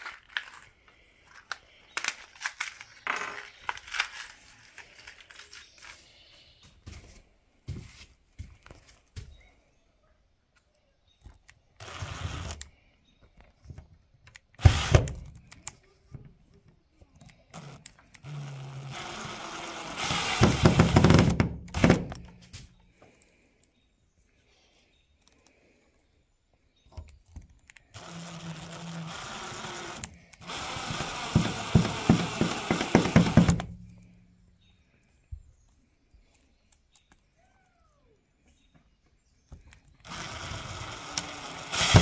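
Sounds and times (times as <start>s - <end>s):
rustling of parts: 0.0s - 9.4s
cordless drill driving screws: 11.8s - 12.7s, 14.6s - 15.3s, 17.5s - 22.3s, 27.9s - 33.8s, 40.0s - 42.0s.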